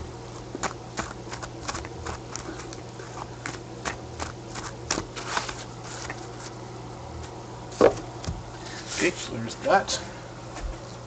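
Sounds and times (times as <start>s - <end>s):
low steady hum: 0.0s - 11.0s
cards shuffling: 1.0s - 6.6s.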